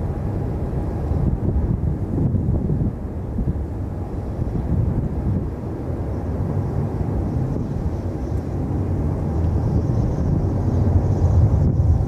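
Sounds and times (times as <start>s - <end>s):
distant jet engines roaring: 0.0s - 12.0s.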